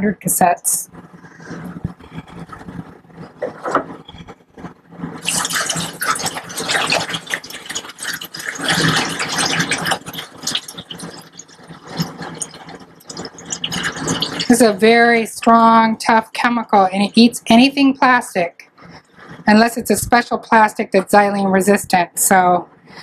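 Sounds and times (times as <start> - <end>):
liquid pouring into a bottle: 5.2 - 14.8.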